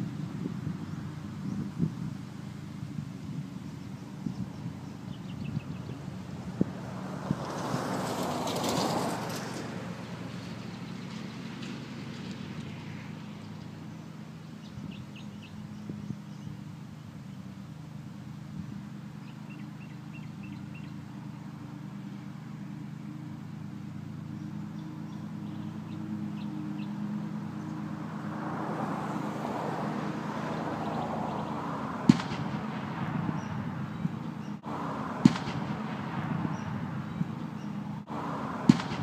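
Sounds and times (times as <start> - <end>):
ride-on mower engine running: 0.0 - 39.0
sharp cracks: 32.0 - 33.6, 35.0 - 36.9, 38.6 - 39.0.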